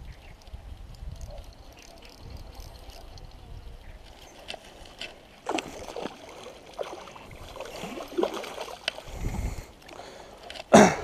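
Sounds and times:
fish splashing water: 4.3s - 10.2s.

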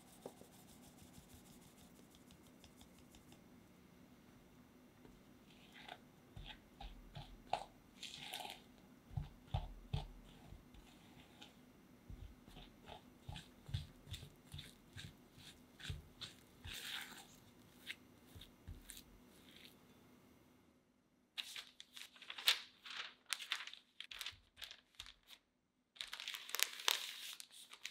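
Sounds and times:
spatula scraping glass bowl: 12.5s - 17.4s.

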